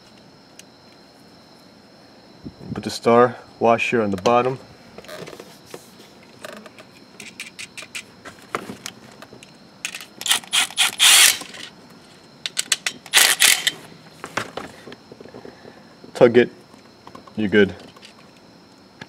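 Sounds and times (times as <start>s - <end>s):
cordless ratchet running: 9.9s - 11.7s, 13.1s - 13.7s
ratchet clicks: 9.9s - 11.7s, 12.5s - 13.8s.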